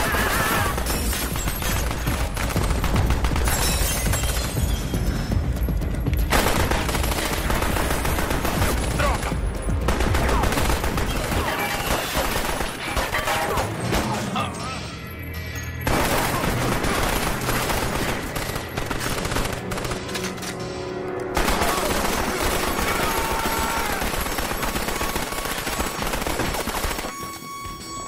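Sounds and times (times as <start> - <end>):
rapid automatic gunfire: 0.0 - 3.6, 6.3 - 9.2, 9.8 - 13.6, 15.9 - 20.1, 21.4 - 27.1.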